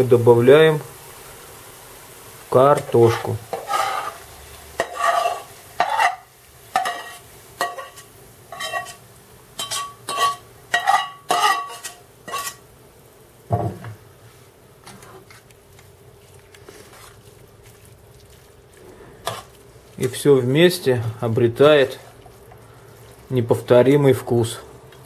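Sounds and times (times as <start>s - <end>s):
spatula scraping metal pan: 3.5s - 4.2s, 4.8s - 9.0s, 9.6s - 12.6s, 18.9s - 20.8s
soft stirring: 14.2s - 25.0s.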